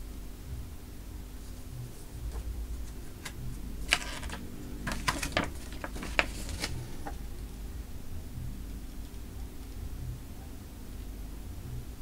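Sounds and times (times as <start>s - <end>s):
steady low hum: 0.0s - 12.0s
paper pages rustling: 1.9s - 7.2s.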